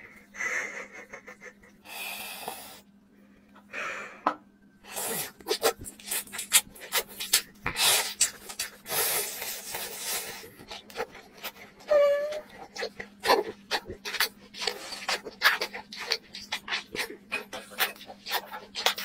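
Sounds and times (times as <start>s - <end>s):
breathy hisses: 1.8s - 2.9s
wet chewing with mouth clicks: 5.0s - 19.0s.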